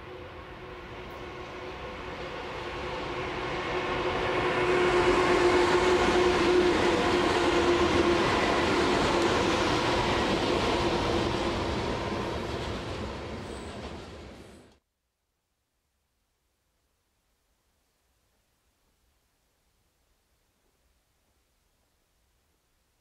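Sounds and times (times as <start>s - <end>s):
train wheels rumbling: 0.0s - 14.7s
electric locomotive whine: 0.0s - 14.8s
freight cars rolling on rails: 0.2s - 14.7s.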